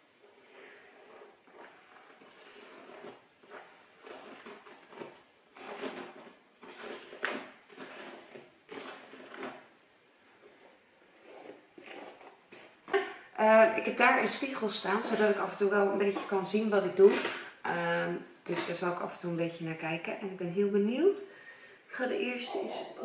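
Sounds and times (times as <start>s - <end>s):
hairbrush swishing through hair: 0.0s - 9.6s.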